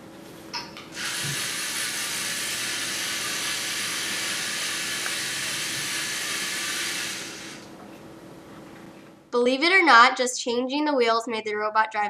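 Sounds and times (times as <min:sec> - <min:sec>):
robot motors whirring: 0:01.0 - 0:07.6.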